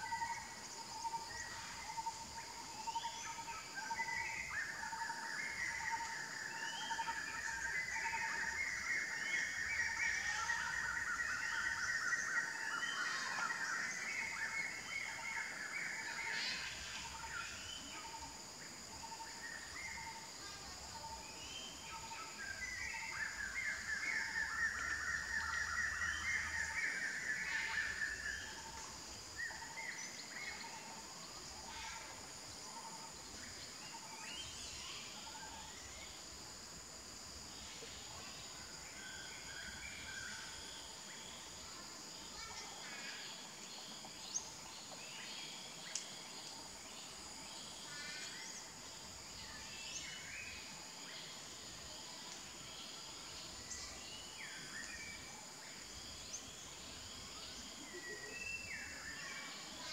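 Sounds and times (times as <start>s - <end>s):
high insect drone: 0.0s - 59.9s.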